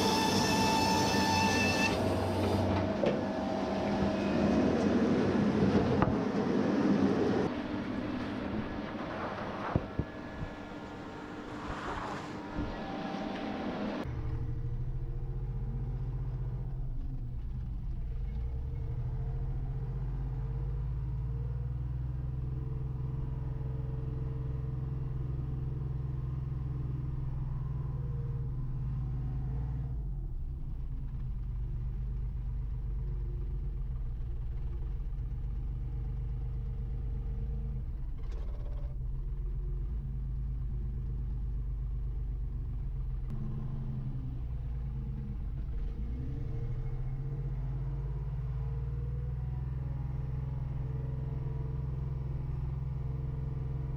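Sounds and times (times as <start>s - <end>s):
wheel loader engine running: 0.0s - 11.5s.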